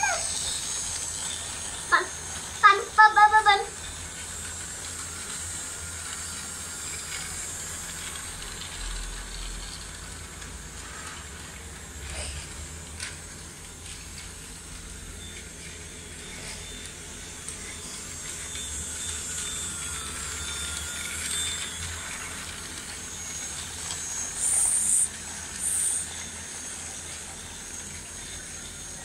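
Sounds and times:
faint high whine: 0:00.0 - 0:29.0
toy train hissing: 0:00.0 - 0:29.0
loud hissing bursts: 0:24.3 - 0:26.0.

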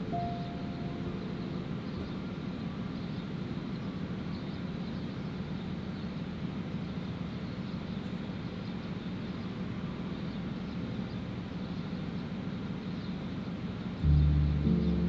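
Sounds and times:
generators droning: 0:00.0 - 0:15.0
background music: 0:14.0 - 0:15.0.

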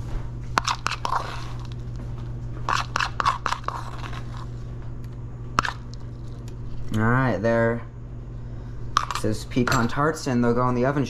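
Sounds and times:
low steady hum: 0:00.0 - 0:11.0
metal spoon scraping and clicking: 0:00.6 - 0:01.7, 0:02.7 - 0:04.2, 0:09.0 - 0:09.3.

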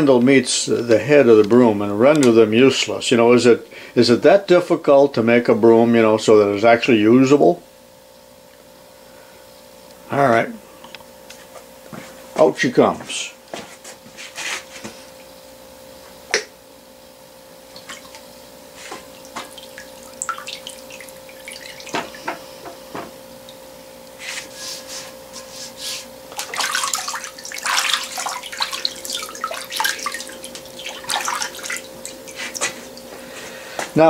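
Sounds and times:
faint steady hum: 0:00.0 - 0:34.0
liquid splashing in plastic tub: 0:17.7 - 0:22.4, 0:26.3 - 0:33.1.

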